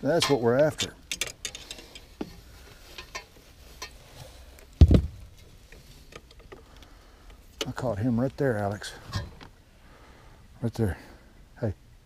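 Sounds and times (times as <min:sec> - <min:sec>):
fishing gear clicks and knocks: 0:00.0 - 0:09.6
heavy dull thump: 0:04.8 - 0:05.3.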